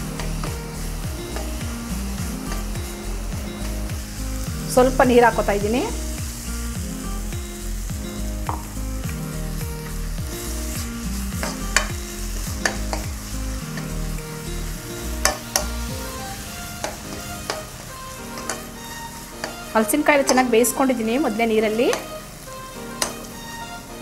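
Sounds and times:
curry sizzling: 0.0s - 24.0s
ladle clicking against pan: 21.9s - 22.1s.

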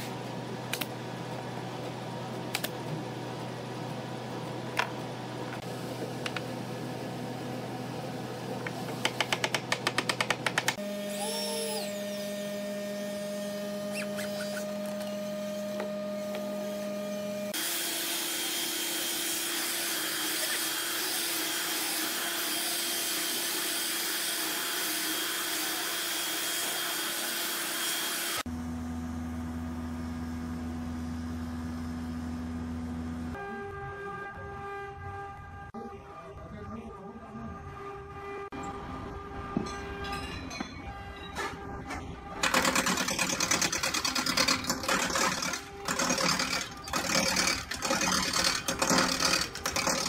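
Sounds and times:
electric planer shaving wood: 10.7s - 28.5s, 42.5s - 50.0s
low machine hum: 28.5s - 42.4s.

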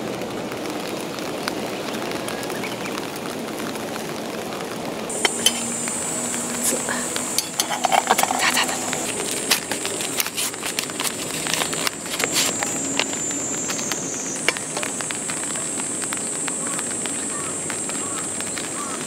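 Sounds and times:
high-pitched insect chorus: 5.1s - 19.0s.

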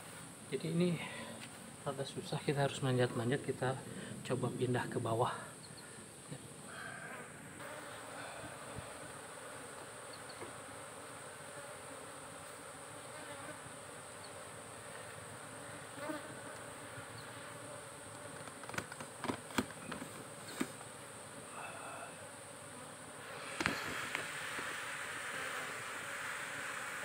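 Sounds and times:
bees buzzing: 5.8s - 27.0s.

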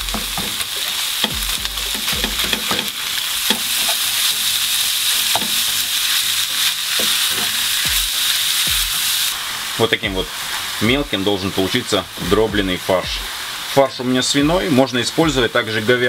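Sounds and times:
wooden spatula knocking on pan: 0.0s - 3.7s
meat sizzling in a pan: 0.0s - 16.0s.

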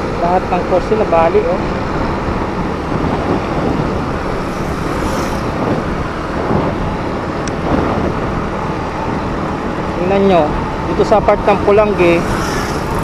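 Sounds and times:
wind and road noise: 0.0s - 13.0s
motorcycle engine running: 11.6s - 13.0s.

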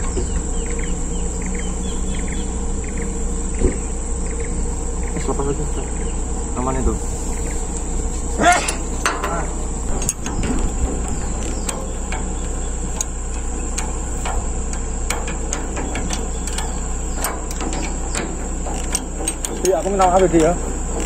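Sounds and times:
high-pitched insect drone: 0.0s - 21.0s
grease gun metallic clicks: 8.6s - 21.0s.

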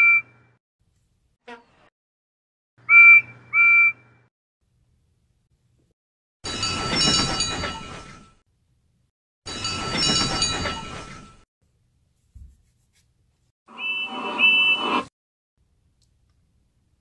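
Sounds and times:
bell ringing: 6.4s - 8.2s, 9.5s - 11.4s
train whistle toots: 13.7s - 15.1s.

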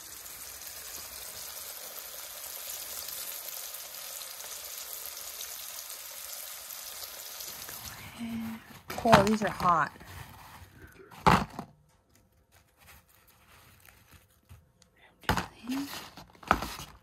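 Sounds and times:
fish sizzling in hot oil: 0.0s - 9.2s.

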